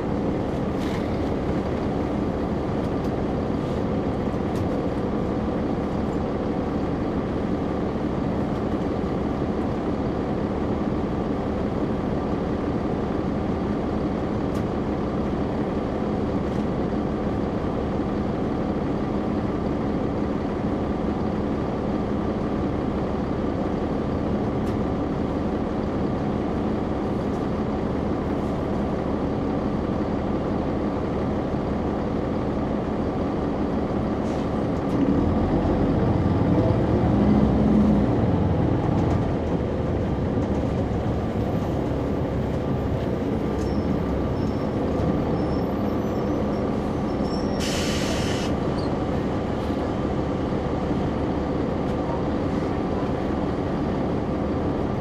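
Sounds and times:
bus diesel engine running: 0:00.0 - 0:55.0
compressed air hiss: 0:47.6 - 0:48.6.

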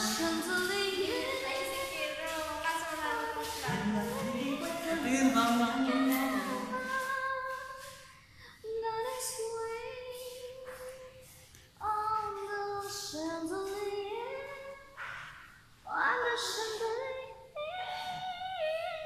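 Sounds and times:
person singing in high voice: 0:00.0 - 0:08.0, 0:08.6 - 0:15.0, 0:15.9 - 0:19.0.

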